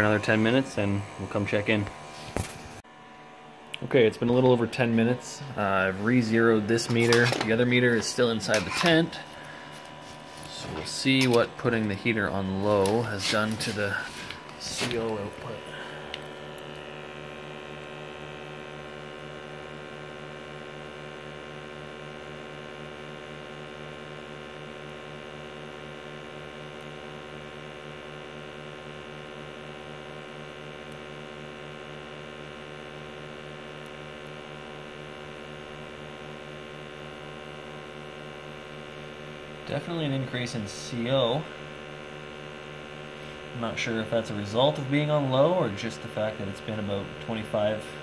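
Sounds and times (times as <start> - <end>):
faint high whine: 0.0 - 20.0.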